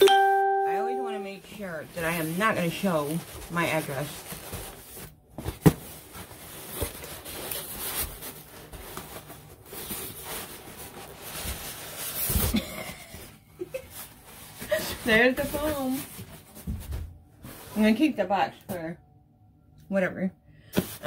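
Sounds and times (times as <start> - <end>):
cardboard scraping and rustling: 2.2 - 12.6, 13.8 - 18.0.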